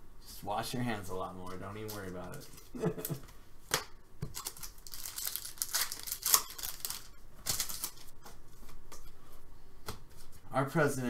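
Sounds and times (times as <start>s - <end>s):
wrappers tearing and crinkling: 4.3s - 8.1s.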